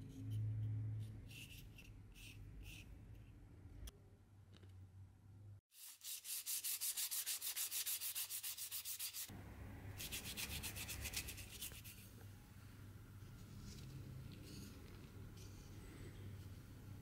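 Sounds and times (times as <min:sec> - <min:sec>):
sandpaper rasping on wood: 0:05.7 - 0:09.3.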